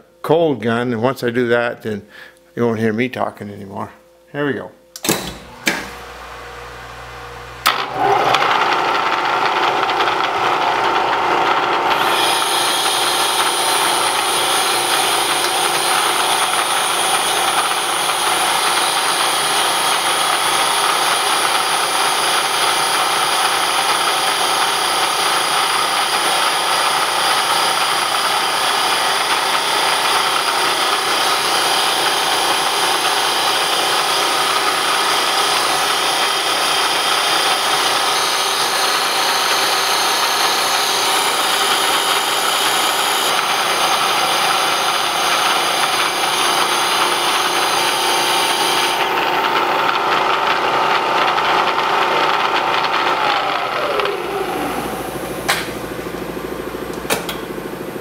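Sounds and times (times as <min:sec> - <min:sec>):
grinding stone on steel: 0:09.9 - 0:54.4.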